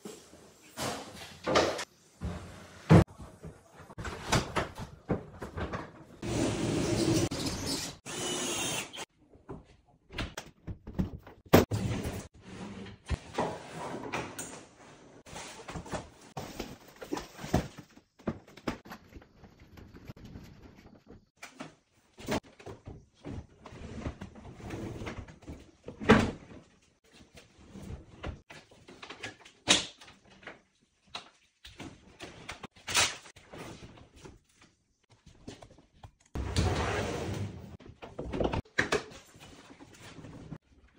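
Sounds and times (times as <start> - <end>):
knocks and thuds of cabinet work: 0.8 - 7.2.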